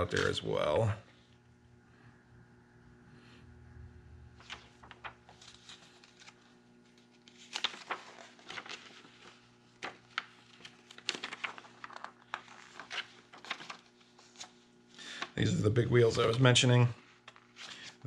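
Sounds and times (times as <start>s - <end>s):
paper pages rustling: 0.0s - 0.7s, 4.4s - 15.4s, 16.0s - 18.0s.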